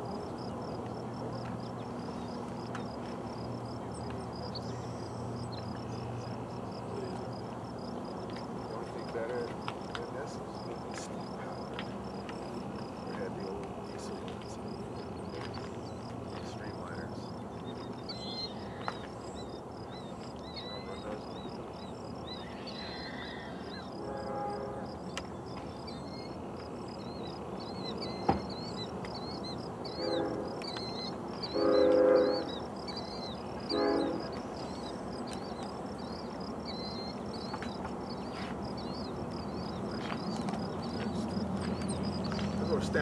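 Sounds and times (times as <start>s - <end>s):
small birds chirping: 0.0s - 24.0s, 24.9s - 43.0s
distant train air horn: 24.0s - 25.0s, 29.9s - 30.7s, 31.5s - 32.6s, 33.7s - 34.4s.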